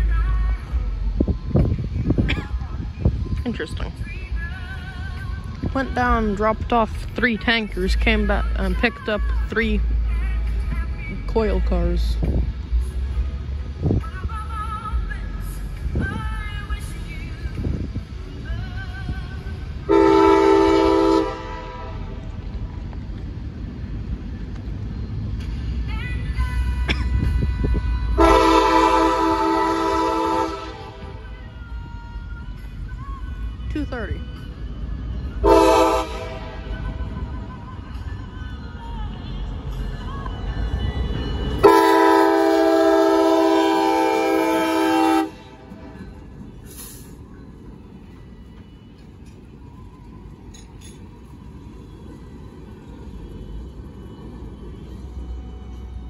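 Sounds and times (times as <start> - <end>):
low rumble of moving train: 0.0 - 56.0
diesel locomotive horn blast: 19.8 - 22.4, 26.7 - 31.3, 35.3 - 37.2, 41.1 - 46.2.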